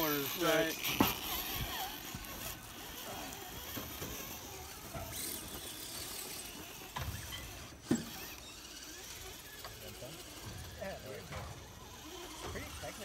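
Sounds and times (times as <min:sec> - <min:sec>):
toy car motor whirring: 0:00.0 - 0:13.0.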